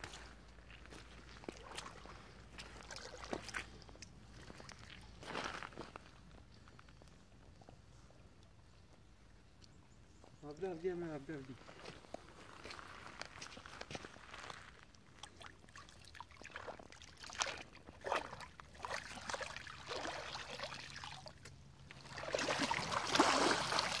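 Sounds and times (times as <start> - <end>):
river water splashing and trickling: 0.0 - 5.9, 11.8 - 24.0
small splashes: 1.4 - 5.0, 15.0 - 24.0
water pouring off net: 21.9 - 24.0.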